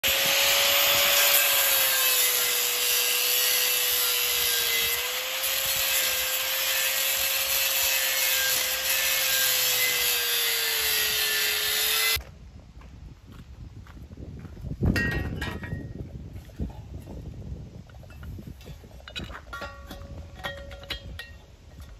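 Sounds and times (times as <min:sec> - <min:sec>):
angle grinder cutting metal: 0:00.0 - 0:12.2.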